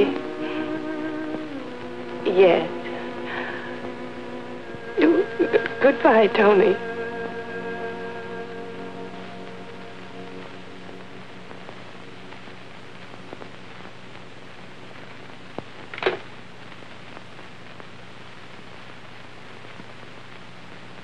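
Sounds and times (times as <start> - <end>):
film soundtrack hiss and hum: 0.0 - 21.0
faint clicks and crackle: 8.8 - 21.0.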